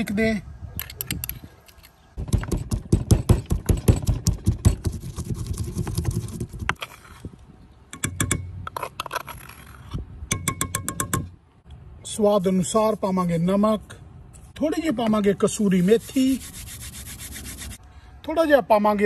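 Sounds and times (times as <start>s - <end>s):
pestle pounding in wooden mortar: 2.2s - 6.7s.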